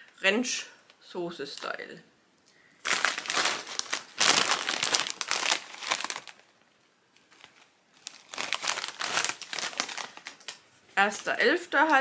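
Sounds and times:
foil crisp packet crinkling: 2.8 - 6.5, 7.2 - 10.6.

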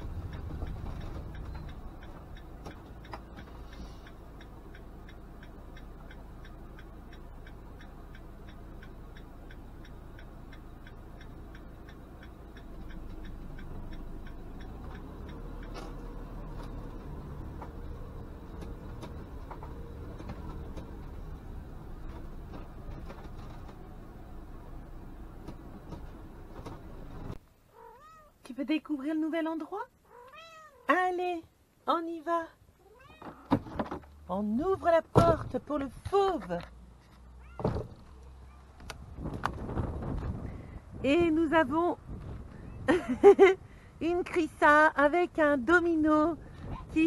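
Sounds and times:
engine running: 0.0 - 27.4
turn signal ticking: 0.0 - 27.4
road noise: 0.0 - 30.9, 32.5 - 47.0.

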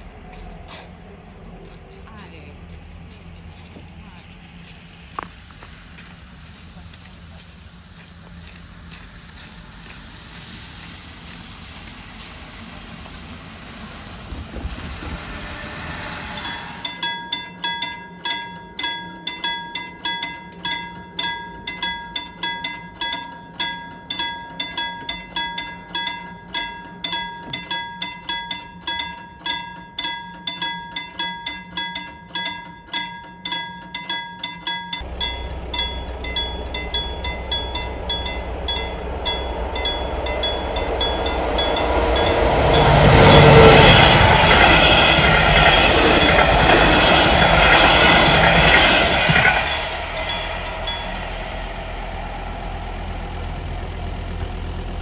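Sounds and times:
electric train passing: 0.0 - 55.0
level-crossing warning bell ringing: 0.0 - 55.0.

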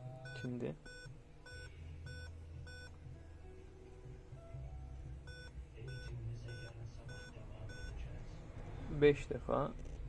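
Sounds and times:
laptop beeping: 0.0 - 3.0, 4.4 - 8.1.

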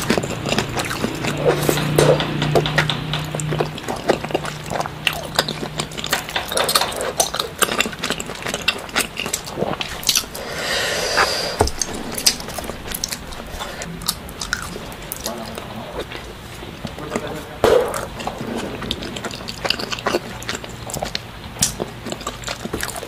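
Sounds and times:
clicks of fingers on plates: 0.0 - 9.5
close-up chewing: 0.0 - 23.0
lip smacks: 0.0 - 23.0.

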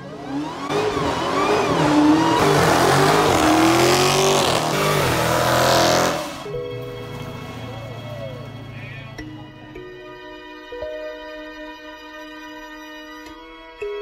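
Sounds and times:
car engine revving: 0.0 - 9.2.

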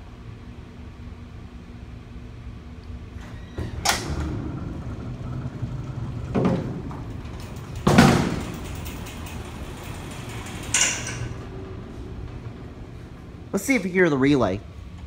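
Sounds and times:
elevator motor rumble: 0.0 - 15.0
elevator doors banging and clanking: 3.2 - 15.0.

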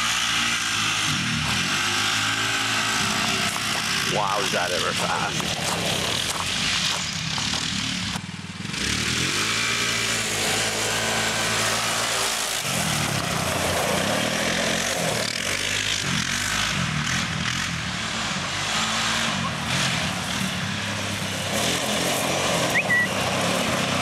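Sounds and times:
atv engine revving: 0.0 - 24.0.

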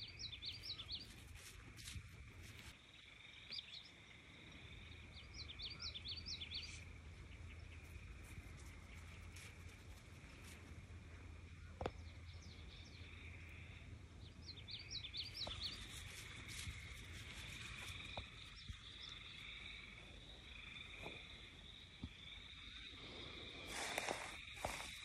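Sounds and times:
bird chirping: 0.0 - 1.5, 4.8 - 9.8, 11.6 - 23.0
soft clicks and rustles in grass: 0.4 - 2.8, 6.7 - 11.0, 15.2 - 19.6, 23.6 - 25.0
frogs trilling: 12.7 - 14.1, 14.8 - 25.0.

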